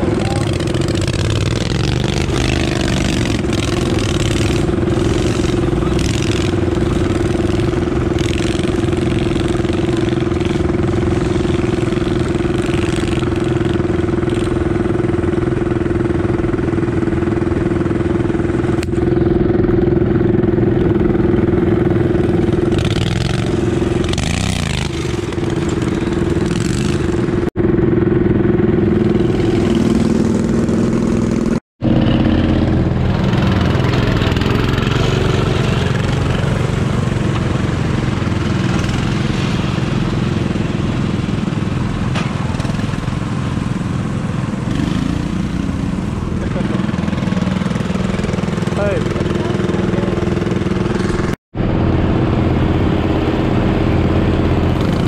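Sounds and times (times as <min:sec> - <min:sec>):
garden tractor engine running: 0:31.8 - 0:55.0.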